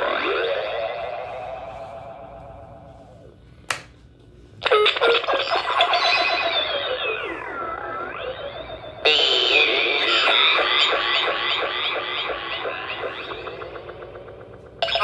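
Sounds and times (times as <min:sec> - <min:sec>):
glitchy synthetic speech: 0:04.6 - 0:15.0.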